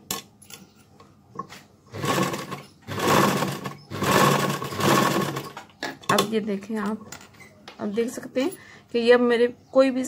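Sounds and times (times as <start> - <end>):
sewing machine stitching: 1.9 - 5.6.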